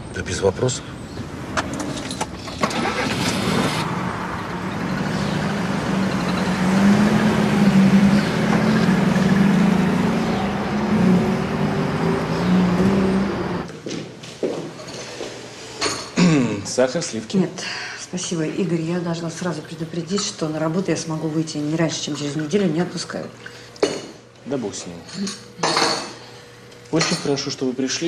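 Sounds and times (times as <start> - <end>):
van engine running: 2.0 - 13.7.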